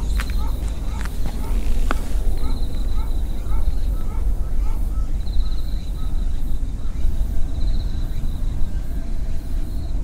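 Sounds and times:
wind rumbling on microphone: 0:00.0 - 0:10.0.

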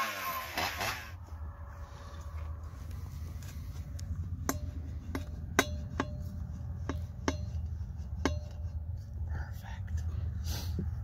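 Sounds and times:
steady low rumble: 0:01.1 - 0:11.0
metallic clinks of exhaust pipe: 0:04.4 - 0:08.8.

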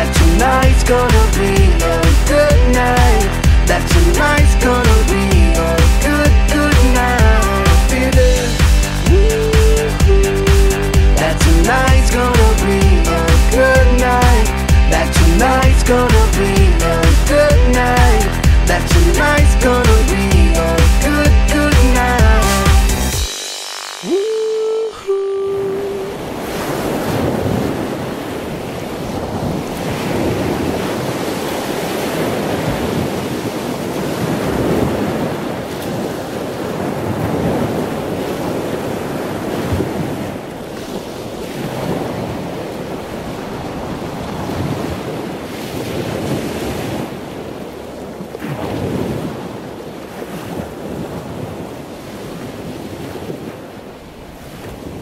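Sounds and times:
ocean surf washing onto beach: 0:21.7 - 0:55.0.

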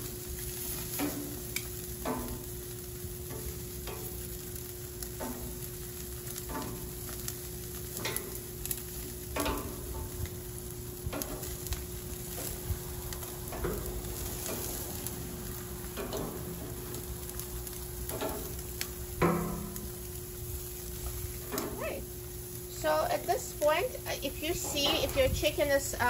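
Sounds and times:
chicken sizzling on grill: 0:00.0 - 0:26.0
metal tongs clinking on grates: 0:03.3 - 0:04.2, 0:06.4 - 0:06.9, 0:09.3 - 0:10.2, 0:15.9 - 0:16.8, 0:18.0 - 0:19.8, 0:24.3 - 0:25.8.

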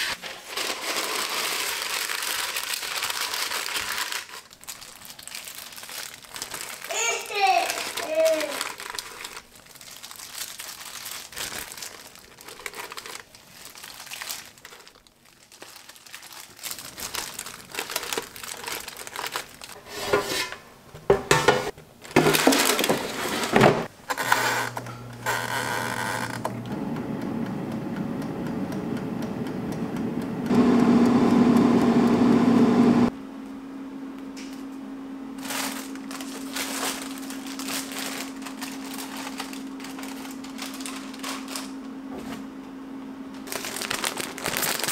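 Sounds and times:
plastic gloves and paper crinkling: 0:00.0 - 0:19.8, 0:22.0 - 0:26.5, 0:35.4 - 0:42.5, 0:43.4 - 0:44.9
air fryer whirring: 0:19.8 - 0:43.5.

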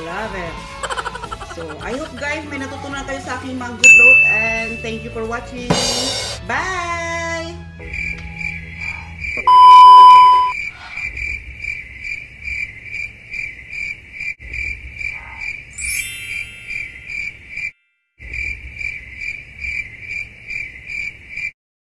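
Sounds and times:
loud steady beep: 0:03.8 - 0:05.0, 0:09.5 - 0:10.6
rising sparkle effect: 0:03.8 - 0:05.1, 0:15.8 - 0:17.3
crickets chirping: 0:07.8 - 0:21.5.

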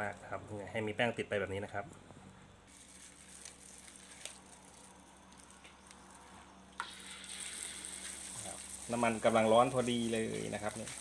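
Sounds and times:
batter frying in oil: 0:02.7 - 0:11.0
hot oil sizzling with ticks: 0:06.8 - 0:11.0.

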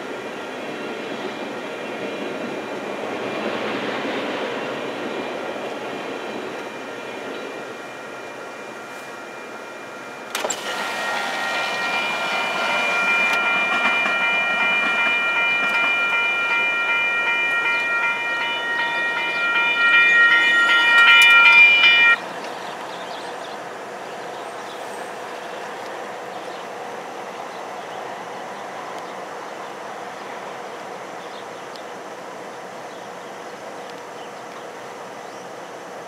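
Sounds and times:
train rolling past: 0:00.0 - 0:36.0
high-pitched multi-tone chord: 0:06.6 - 0:22.2.

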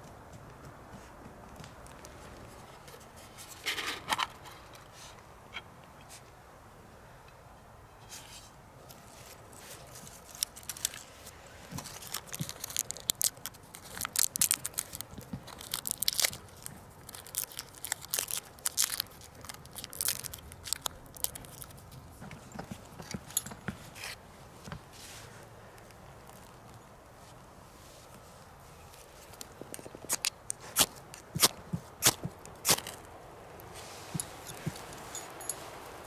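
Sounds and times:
hands crumpling dry bark: 0:08.9 - 0:22.9
small twigs snapping: 0:11.7 - 0:21.8, 0:29.0 - 0:33.7.

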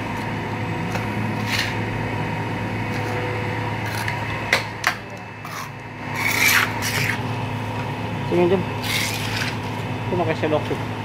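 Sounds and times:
steady low hum: 0:00.0 - 0:11.0
trowel scraping cement: 0:01.4 - 0:01.8, 0:05.4 - 0:07.3, 0:08.8 - 0:09.7.

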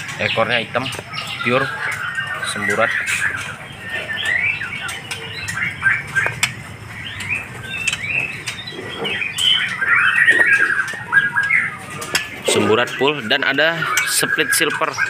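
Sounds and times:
birds chirping and calling: 0:00.0 - 0:15.0
sharp clicks: 0:04.2 - 0:08.7.

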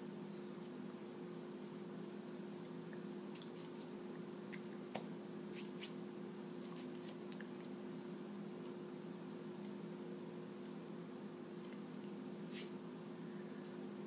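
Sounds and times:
low electrical hum: 0:00.0 - 0:14.0
faint hand and mouth noises: 0:02.9 - 0:04.7, 0:06.6 - 0:07.8, 0:11.7 - 0:12.8.

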